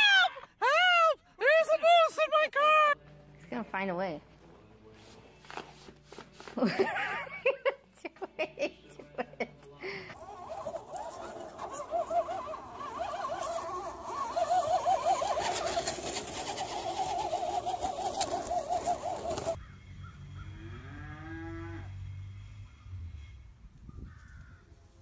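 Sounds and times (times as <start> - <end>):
warbling pitched sound: 10.2 - 19.6
cow mooing: 20.5 - 22.0.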